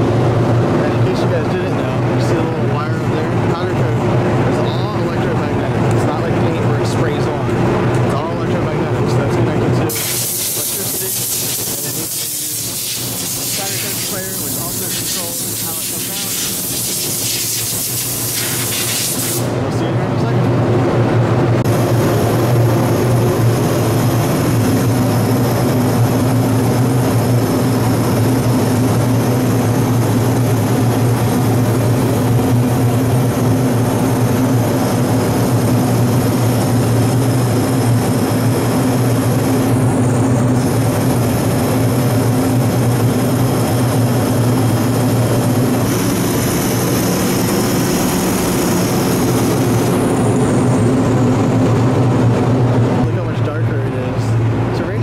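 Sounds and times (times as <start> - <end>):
exhaust fan drone: 0.0 - 55.0
spray gun air hiss: 9.9 - 19.6.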